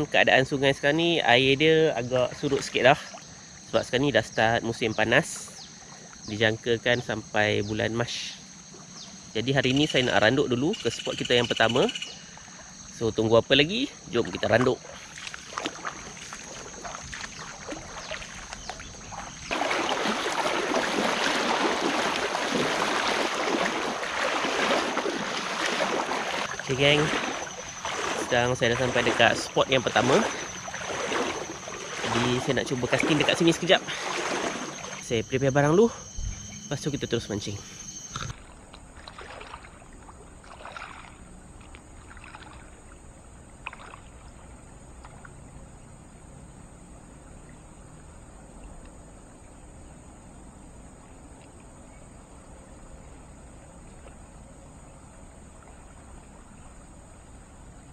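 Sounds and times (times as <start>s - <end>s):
water splashing from wading: 1.9s - 4.0s, 5.2s - 6.4s, 13.7s - 46.1s, 53.4s - 57.9s.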